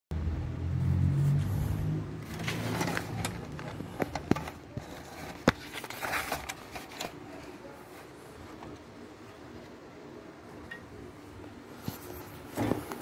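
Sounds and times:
phone handling rubbing and scraping: 0:02.2 - 0:08.9, 0:11.8 - 0:13.0.

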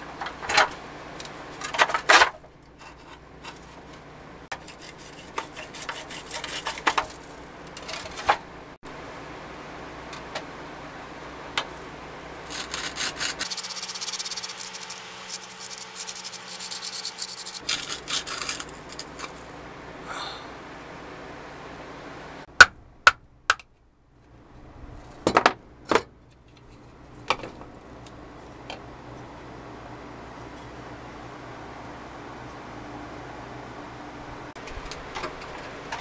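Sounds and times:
plastic toy scraping: 0:12.5 - 0:18.7.

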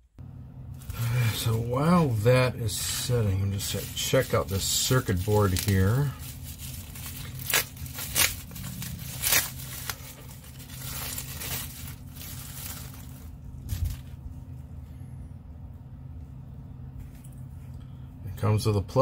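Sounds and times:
steady low hum: 0:00.0 - 0:19.0
plastic packaging crinkling: 0:03.0 - 0:14.4.

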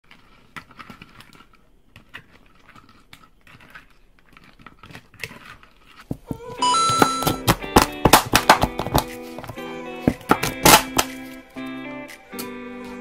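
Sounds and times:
spatula mixing wet squelches: 0:00.0 - 0:06.6.

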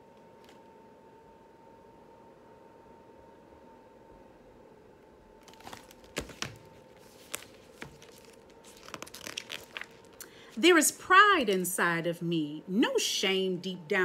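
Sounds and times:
faint room hum: 0:00.0 - 0:14.0
sharp page clicks: 0:05.4 - 0:10.3
paper pages rustling: 0:05.4 - 0:10.5.

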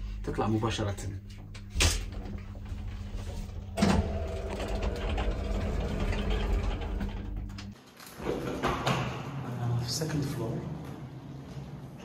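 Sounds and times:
lift humming and rumbling: 0:00.0 - 0:07.8.

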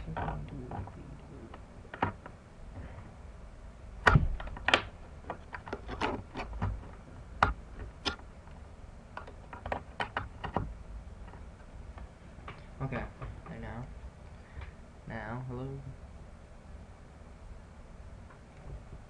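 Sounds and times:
clicks and knocks of handling: 0:04.0 - 0:08.2, 0:09.2 - 0:12.6
loud thumps: 0:04.0 - 0:08.2.

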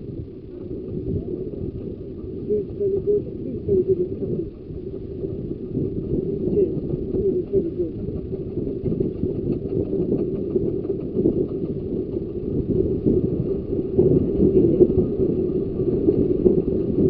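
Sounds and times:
train wheels rumbling on track: 0:00.4 - 0:17.0.

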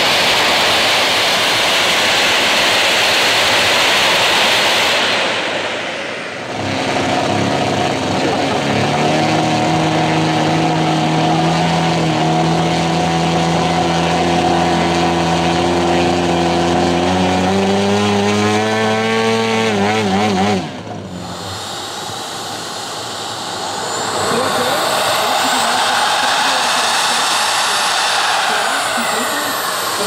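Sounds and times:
high turbine whine: 0:00.0 - 0:30.0
model plane piston engine: 0:00.0 - 0:30.0
model jet turbine hiss: 0:21.1 - 0:30.0.

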